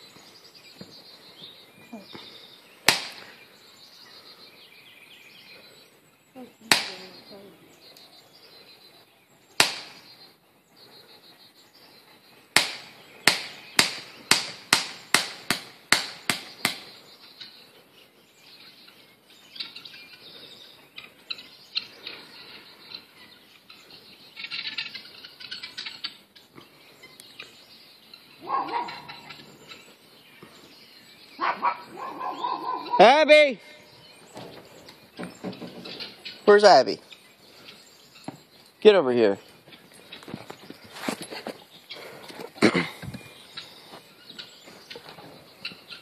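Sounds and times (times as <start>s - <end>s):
bird calls: 0.0s - 46.0s
sharp impacts: 2.8s - 3.4s, 9.6s - 10.1s, 12.6s - 16.8s.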